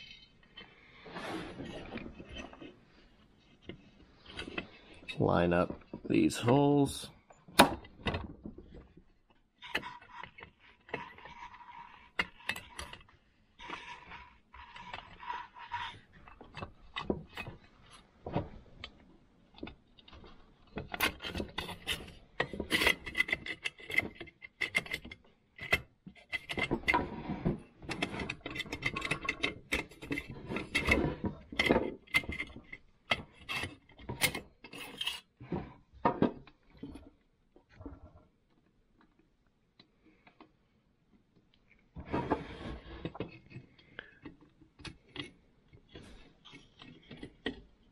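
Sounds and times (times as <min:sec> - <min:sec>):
small clicks and knocks: 0:07.2 - 0:42.1, 0:43.0 - 0:47.9
metal parts scraping: 0:20.9 - 0:35.4.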